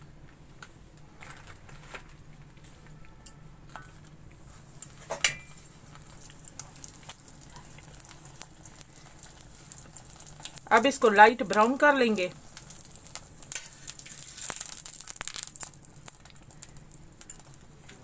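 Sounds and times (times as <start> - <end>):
flatbread sizzling in oil: 3.8 - 18.0.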